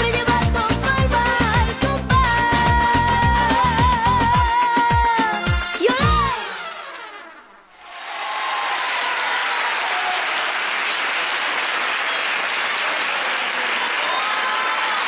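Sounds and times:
music: 0.0s - 7.7s
audience applauding: 7.8s - 15.0s.

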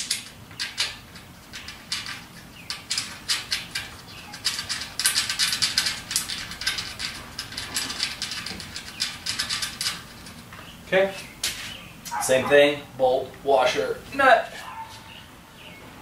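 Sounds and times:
metal nut clicking on bolt: 0.0s - 10.4s.

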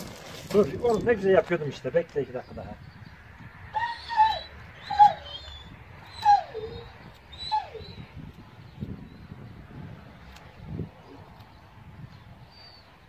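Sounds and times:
dog whimpering: 3.8s - 8.0s.

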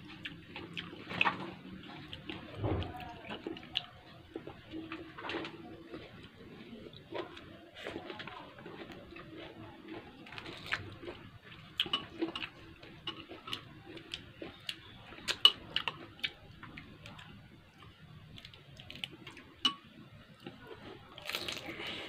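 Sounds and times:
chewing crisp food: 0.0s - 22.0s.

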